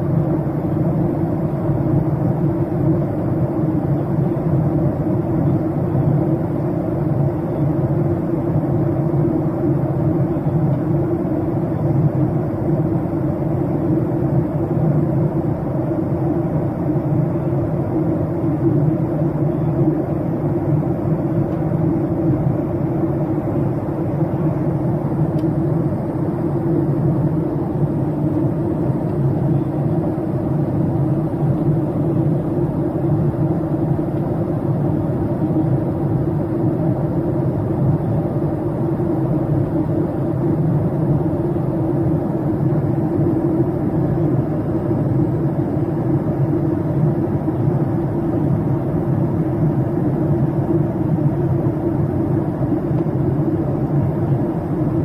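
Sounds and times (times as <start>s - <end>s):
jet engine hum: 0.0s - 55.0s.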